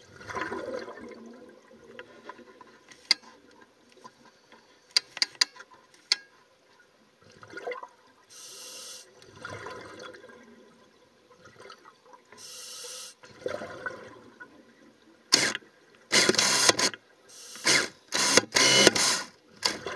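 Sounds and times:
hissing regulator inhalations: 8.3s - 9.1s, 12.4s - 13.2s, 17.3s - 17.9s.

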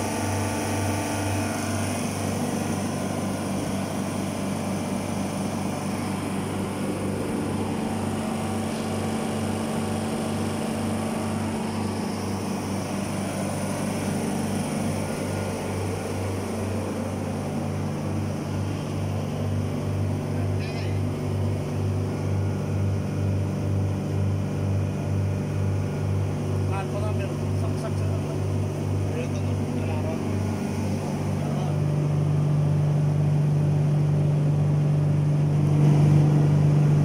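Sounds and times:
compressor throbbing hum: 0.0s - 37.0s.

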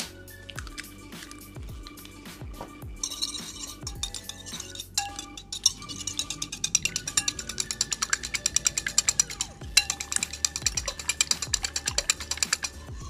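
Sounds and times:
whisk clicking against bowl: 3.0s - 12.8s.

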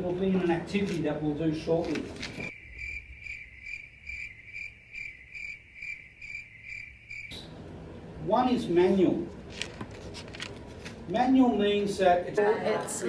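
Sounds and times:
crickets chirping: 2.5s - 7.5s.

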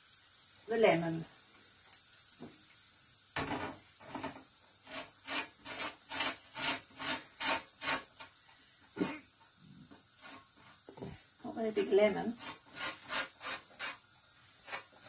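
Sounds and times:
lemon scraping on metal grater: 4.0s - 8.3s, 10.2s - 10.8s, 12.3s - 14.0s, 14.6s - 15.0s.

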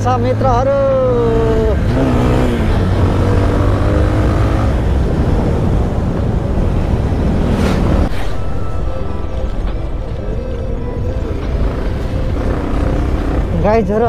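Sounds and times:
road noise: 0.0s - 14.0s
motorcycle engine running: 9.6s - 14.0s.

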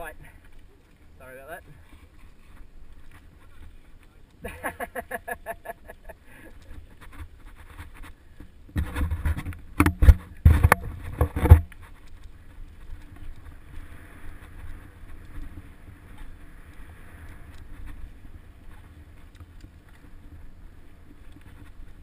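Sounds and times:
bike rattling and knocking: 6.6s - 13.7s.

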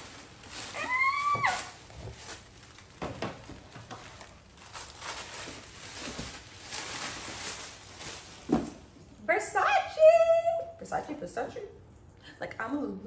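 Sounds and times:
wrapping paper rustling: 0.0s - 9.0s.

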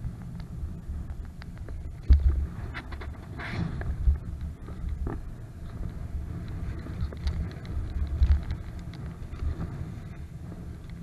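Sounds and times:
faint clicks: 0.0s - 3.1s
wind rumble on microphone: 0.0s - 11.0s.

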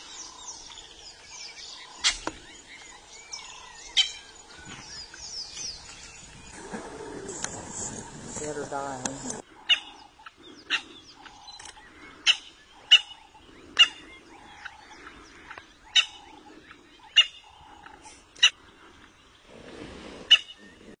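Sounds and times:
low rough animal noise: 5.8s - 21.0s.

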